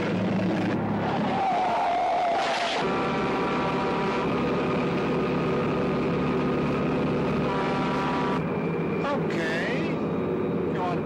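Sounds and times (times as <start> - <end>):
diesel truck engine running: 0.0 - 1.5, 2.8 - 11.0
truck horn: 2.8 - 4.9, 7.2 - 8.5.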